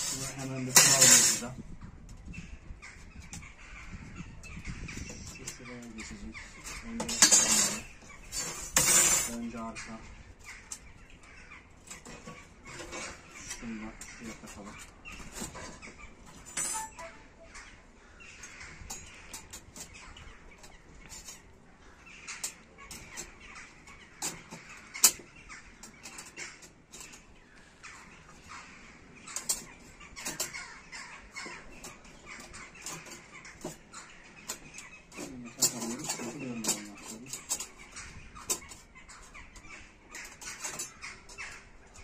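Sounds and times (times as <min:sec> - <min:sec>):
metal stove panels clinking: 0:16.5 - 0:17.2
sharp metallic clack: 0:16.5 - 0:17.2.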